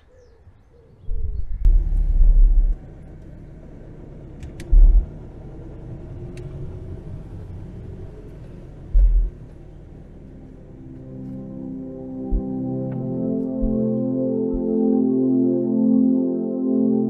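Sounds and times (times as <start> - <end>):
low road and engine rumble: 1.1 - 15.3
loud low thumps: 1.3 - 2.9, 4.7 - 5.1, 9.0 - 9.4, 12.3 - 14.8.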